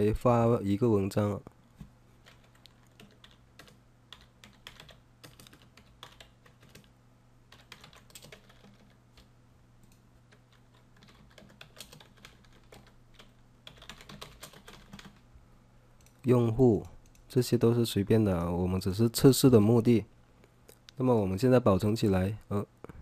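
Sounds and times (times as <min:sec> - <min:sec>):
low steady hum: 0:00.0 - 0:23.0
keyboard typing: 0:02.2 - 0:06.9, 0:07.5 - 0:15.2.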